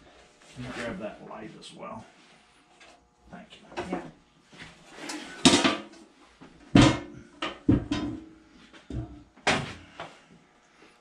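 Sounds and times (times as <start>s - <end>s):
metal cover clunks and knocks: 6.8s - 8.3s.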